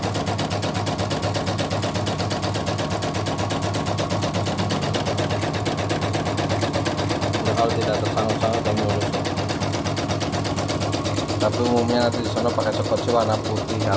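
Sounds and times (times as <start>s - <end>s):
embroidery machine stitching: 0.0s - 13.9s.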